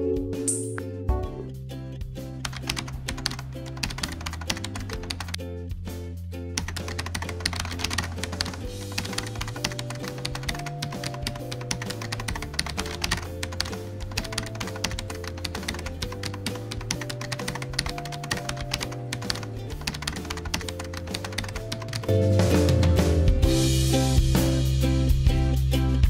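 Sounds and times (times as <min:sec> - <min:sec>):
soft background music: 0:00.0 - 0:25.9
keyboard typing clicks: 0:02.4 - 0:05.4, 0:06.6 - 0:22.1
drums: 0:04.7 - 0:11.6, 0:21.2 - 0:26.0.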